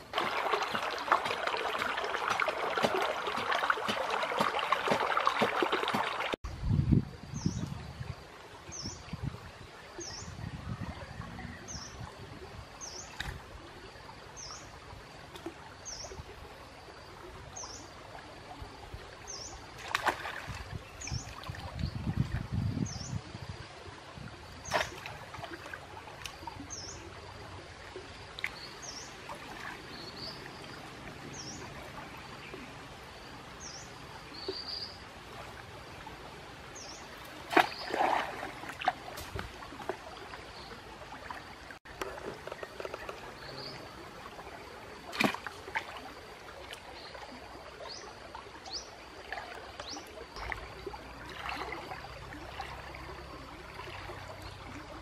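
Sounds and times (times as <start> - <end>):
water sloshing and splashing: 0.0 - 6.4, 11.8 - 22.7, 23.5 - 55.0.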